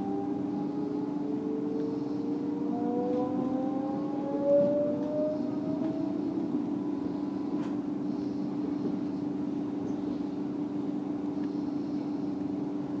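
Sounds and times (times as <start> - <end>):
steady humming tone: 0.0 - 13.0
train rolling noise: 3.1 - 13.0.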